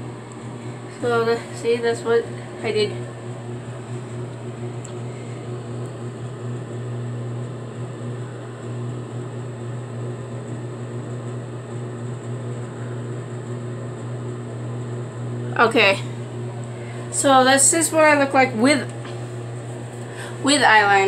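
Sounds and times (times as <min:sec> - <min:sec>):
thin high whine: 0:00.0 - 0:06.2
low electrical drone: 0:00.0 - 0:09.3, 0:13.6 - 0:21.0.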